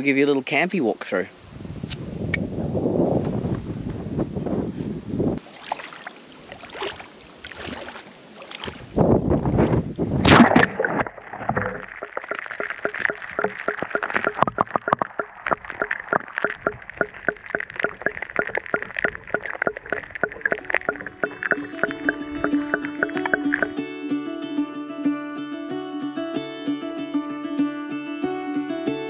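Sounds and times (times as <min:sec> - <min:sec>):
water crackling in microphone: 0:05.4 - 0:23.8
water splashing: 0:05.4 - 0:23.8.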